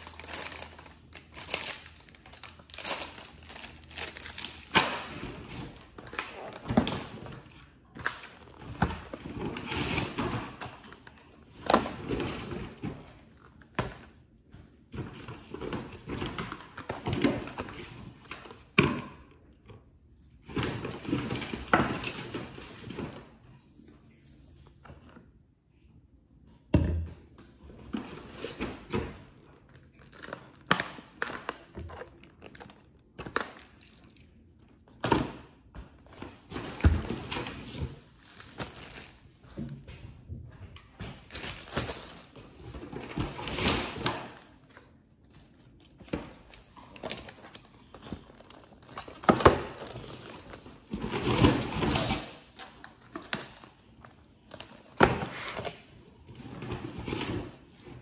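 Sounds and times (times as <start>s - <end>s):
plastic packaging crinkling: 0.0s - 12.6s, 29.6s - 34.4s, 37.4s - 39.3s, 41.3s - 43.2s, 45.3s - 55.8s
items thunking on countertop: 26.7s - 27.2s.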